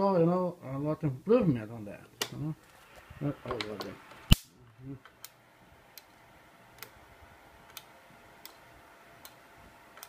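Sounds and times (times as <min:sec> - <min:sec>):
faint sharp electrical clicks: 0:02.1 - 0:10.0.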